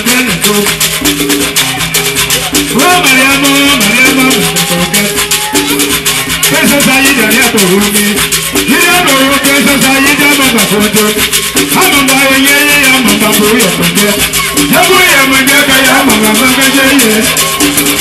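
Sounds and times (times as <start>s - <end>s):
rattles shaken: 0.0s - 18.0s
wavering melody line: 0.0s - 18.0s.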